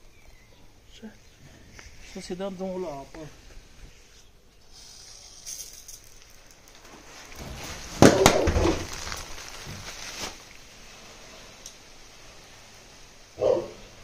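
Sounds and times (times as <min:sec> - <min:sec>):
loud crackling clatter: 0:06.0 - 0:10.8
dog barking: 0:13.4 - 0:13.9.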